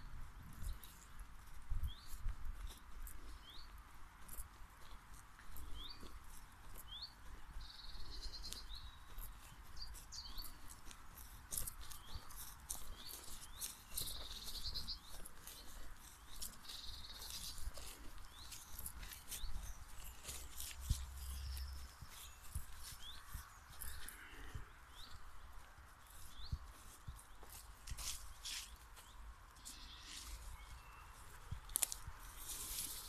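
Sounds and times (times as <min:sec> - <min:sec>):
footsteps through long grass: 0:00.0 - 0:33.0
birds chirping and trilling: 0:05.6 - 0:33.0.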